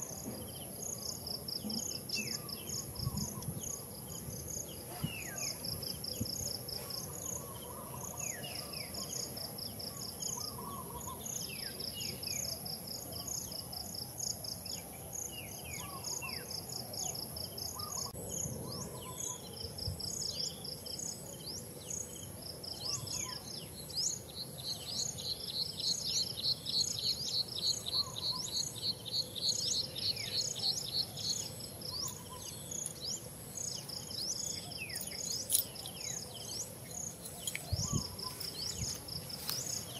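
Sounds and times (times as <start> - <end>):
insects trilling: 0.0 - 39.9
bird chirps: 22.8 - 39.9.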